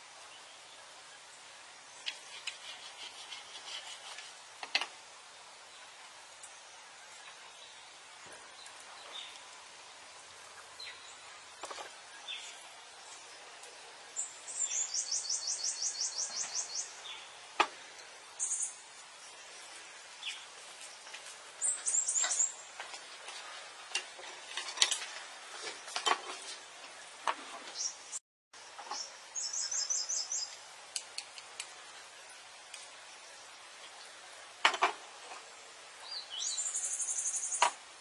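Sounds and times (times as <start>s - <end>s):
small bird singing trills: 14.1s - 17.3s, 21.6s - 22.6s, 28.9s - 30.6s, 36.0s - 37.6s.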